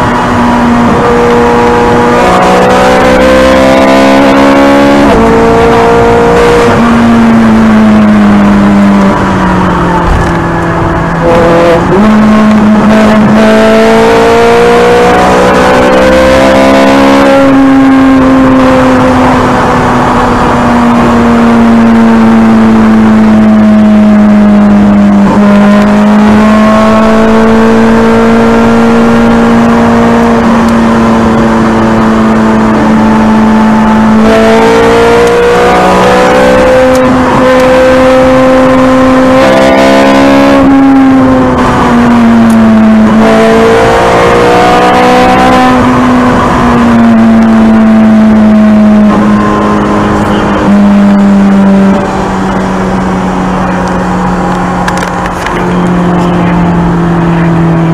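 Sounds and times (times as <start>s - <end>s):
car engine running hard: 0.0s - 57.9s
road and wind noise: 0.0s - 57.9s.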